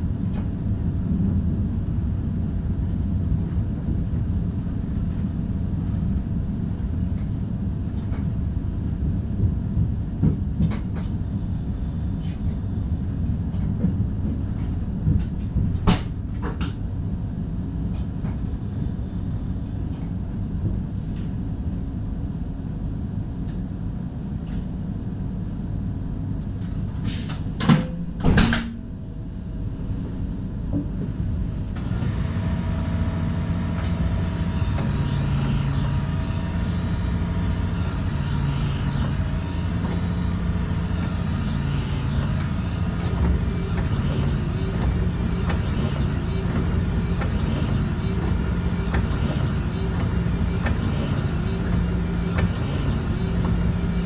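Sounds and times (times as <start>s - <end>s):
train cab rumble: 0.0s - 54.0s
low hum shifting in pitch: 27.6s - 54.0s.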